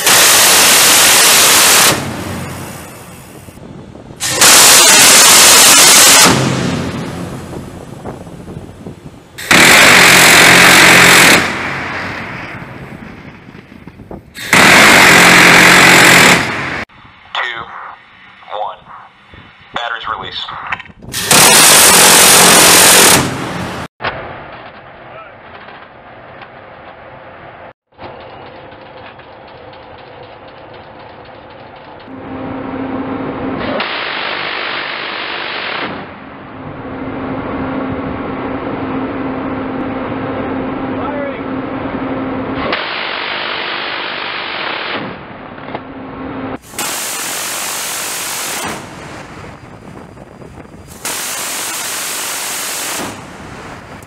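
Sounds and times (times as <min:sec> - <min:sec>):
rotary cannon firing bursts: 0:00.0 - 0:03.0, 0:04.2 - 0:07.7, 0:09.4 - 0:12.8, 0:14.4 - 0:16.9, 0:21.1 - 0:25.8, 0:33.6 - 0:36.2, 0:42.6 - 0:45.6, 0:46.6 - 0:49.6, 0:50.9 - 0:53.8
loud even rushing noise: 0:00.0 - 0:17.2
mechanical rattling and clicks: 0:28.0 - 0:32.1.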